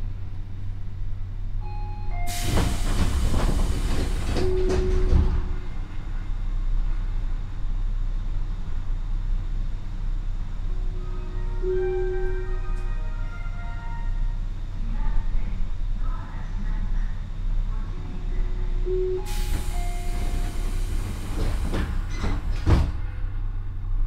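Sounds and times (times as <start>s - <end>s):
air hiss: 19.3s - 21.9s.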